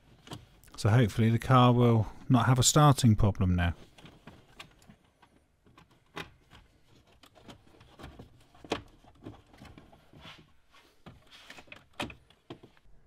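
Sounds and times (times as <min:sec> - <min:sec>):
hands handling car trim: 0:03.8 - 0:12.9.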